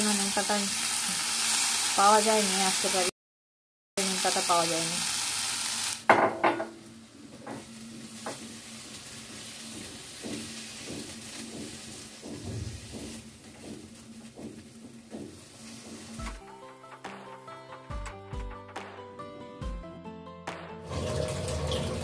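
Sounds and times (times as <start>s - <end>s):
eggplant sizzling in hot oil: 0.0s - 3.1s, 4.0s - 16.4s, 20.9s - 22.0s
sharp knocks on wok: 6.1s - 6.8s.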